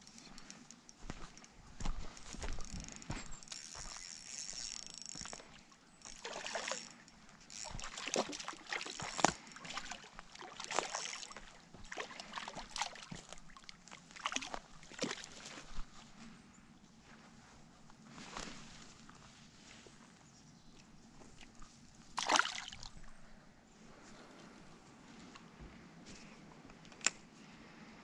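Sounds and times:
fish splashing in water: 6.0 - 6.9, 7.6 - 15.5, 22.2 - 23.0.

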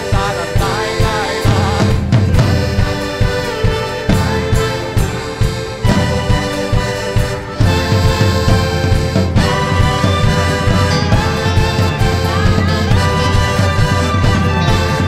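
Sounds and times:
accordion: 0.0 - 15.0
drums keeping quick beat: 0.0 - 15.0
guitars: 0.0 - 15.0.

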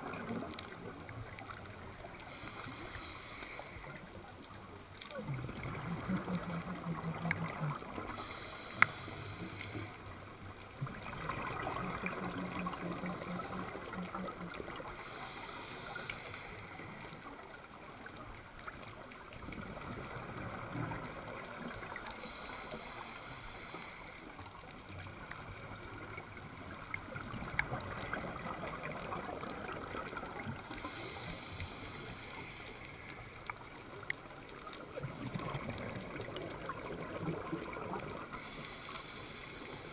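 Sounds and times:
regulator inhale hiss: 2.1 - 4.2, 8.0 - 10.2, 14.8 - 17.6, 21.3 - 24.6, 30.6 - 33.7, 38.3 - 39.9
exhaled bubbles: 5.1 - 8.3, 10.8 - 15.0, 25.0 - 32.0, 34.8 - 38.8.

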